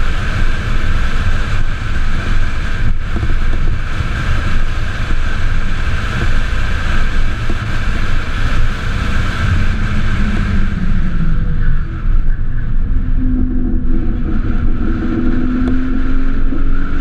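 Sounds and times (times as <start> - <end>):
road rumble: 0.0 - 17.0
wind rushing over microphone: 0.0 - 17.0
faint tone: 9.5 - 16.8.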